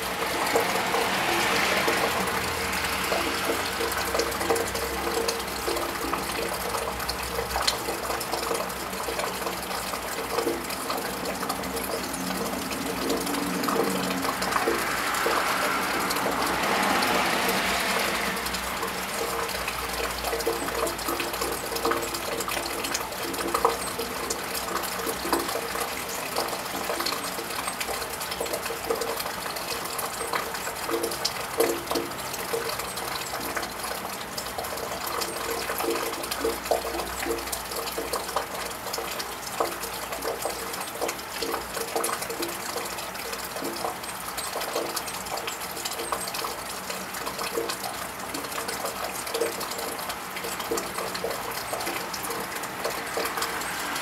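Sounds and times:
car tyres hissing on wet road: 0:00.0 - 0:05.0, 0:12.2 - 0:20.2, 0:52.5 - 0:54.0
low rumble of traffic: 0:00.0 - 0:54.0
rain on a tiled roof: 0:00.0 - 0:54.0
water dripping: 0:00.0 - 0:54.0.

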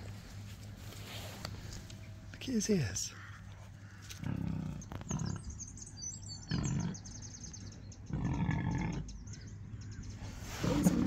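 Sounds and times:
small birds chirping: 0:01.4 - 0:11.0
low rumbling animal calls: 0:03.1 - 0:11.0.

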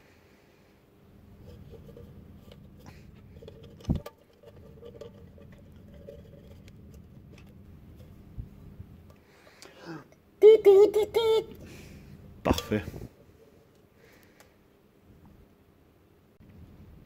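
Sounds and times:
tin can rubbing and scraping: 0:01.4 - 0:08.1.

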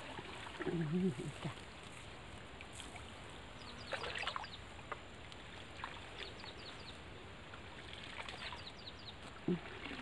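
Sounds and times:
water splashing and trickling: 0:00.0 - 0:10.0
bird chirping: 0:06.2 - 0:07.0.

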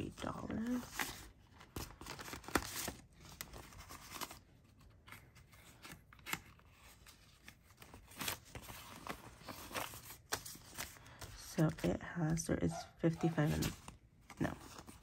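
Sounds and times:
paper banknotes rustling: 0:00.6 - 0:12.4.

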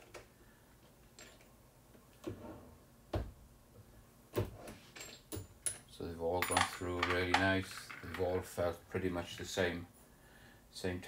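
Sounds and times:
metal clicks and knocks: 0:05.0 - 0:08.3.

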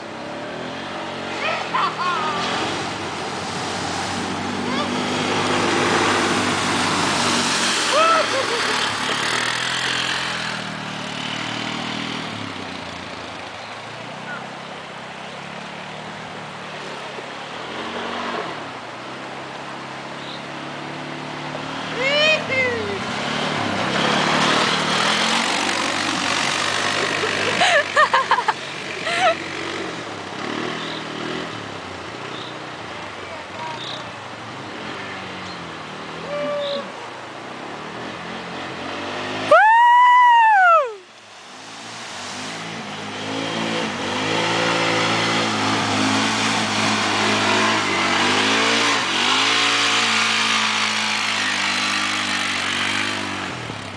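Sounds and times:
fast river rushing: 0:00.3 - 0:13.1, 0:14.0 - 0:30.3
person yelling: 0:01.4 - 0:02.4, 0:07.9 - 0:08.5, 0:22.0 - 0:23.0, 0:36.2 - 0:37.0
quad bike engine running: 0:04.3 - 0:14.6, 0:21.7 - 0:32.6, 0:42.6 - 0:53.9.

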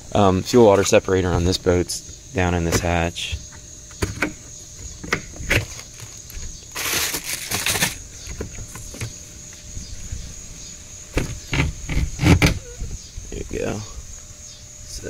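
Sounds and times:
insects chirring: 0:00.0 - 0:15.0
plastic hatch lid clunking: 0:02.6 - 0:05.8
plastic hose scraping deck: 0:02.6 - 0:09.2, 0:11.1 - 0:12.8.

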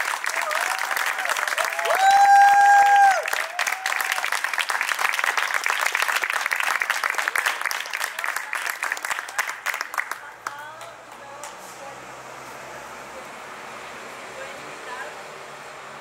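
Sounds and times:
audience applauding: 0:00.0 - 0:11.5
person cheering: 0:00.3 - 0:04.3.

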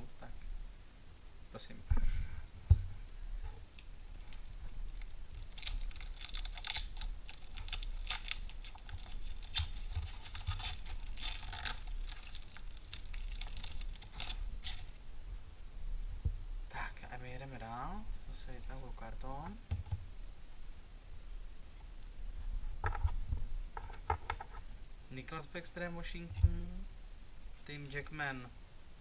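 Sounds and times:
foil wrapper crinkling and tearing: 0:04.3 - 0:15.0.

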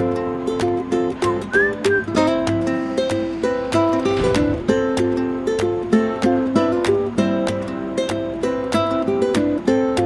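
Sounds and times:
sliding melody line: 0:00.0 - 0:06.8
strummed chords: 0:00.0 - 0:10.0.

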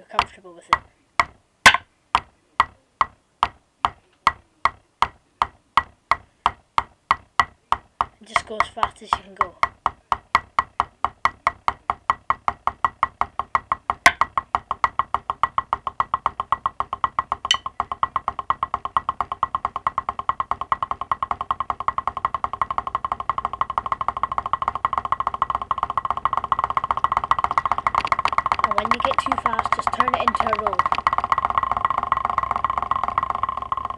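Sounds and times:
drumsticks on a practice pad: 0:00.0 - 0:33.9.

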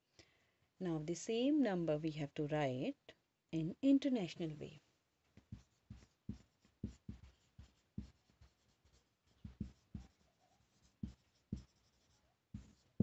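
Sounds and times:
marker pen writing: 0:05.4 - 0:13.0.

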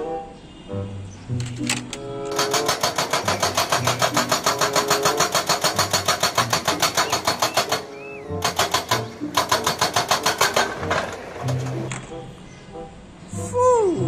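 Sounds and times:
background music: 0:00.0 - 0:14.0
hydraulic breaker hammering rock: 0:02.3 - 0:11.9.

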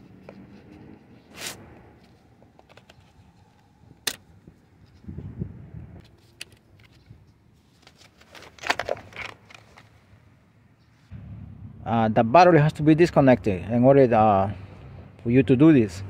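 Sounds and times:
low bump: 0:11.1 - 0:12.4.

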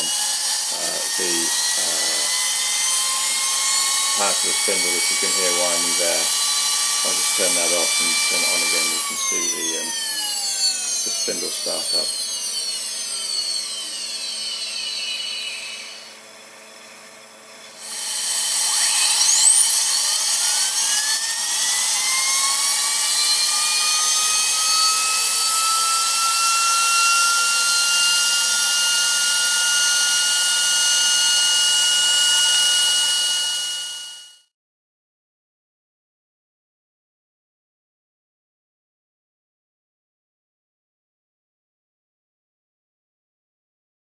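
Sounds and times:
grinder spindle whine: 0:00.0 - 0:34.5.

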